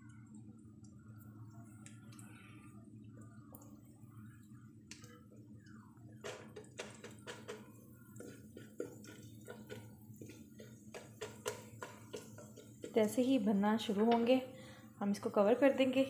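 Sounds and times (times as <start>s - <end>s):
butter sizzling with crackling clicks: 4.4s - 13.3s
spatula against pan: 6.2s - 13.3s.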